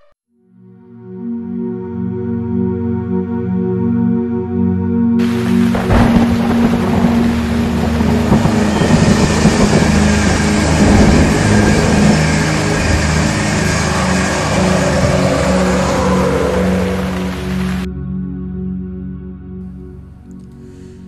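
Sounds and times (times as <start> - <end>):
soft ambient music: 0.5 - 21.0
train passing at speed: 5.2 - 17.9.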